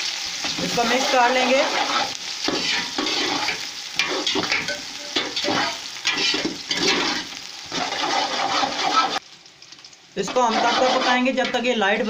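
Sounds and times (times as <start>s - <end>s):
onions sizzling in oil: 0.0s - 12.0s
ladle stirring against pot: 1.6s - 9.2s, 10.2s - 11.6s.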